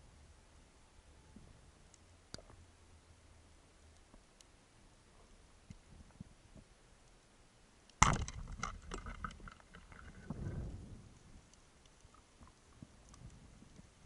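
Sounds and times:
speargun crack underwater: 8.0s - 10.4s
low rumble: 10.0s - 11.4s.

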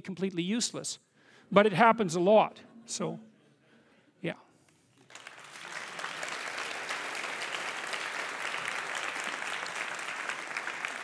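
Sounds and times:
audience applause: 5.1s - 11.0s.

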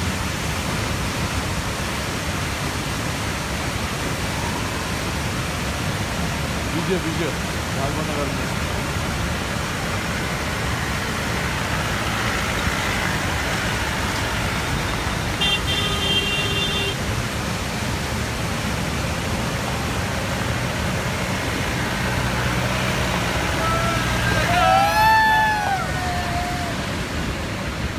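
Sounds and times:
waterfall rushing: 0.0s - 27.9s
vehicle horn: 15.4s - 17.0s.

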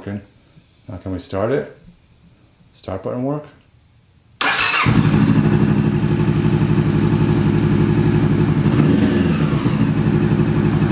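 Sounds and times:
motorcycle starter cranking: 4.4s - 5.4s
motorcycle engine idling: 4.4s - 10.9s.

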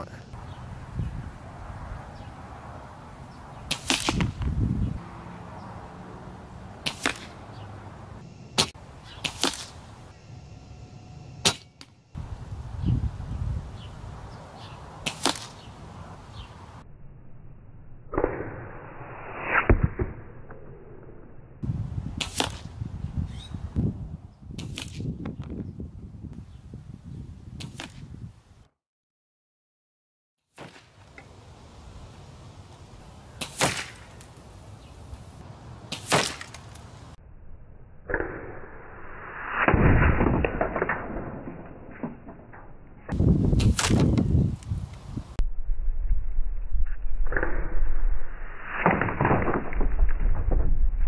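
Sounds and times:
air rifle shots: 6.8s - 7.4s, 33.4s - 34.2s, 35.9s - 36.6s.

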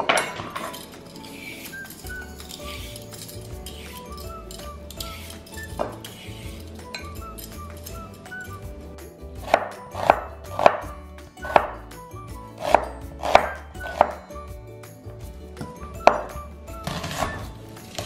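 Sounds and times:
knife chopping on wooden board: 9.4s - 11.8s, 12.6s - 14.2s, 16.0s - 16.3s.

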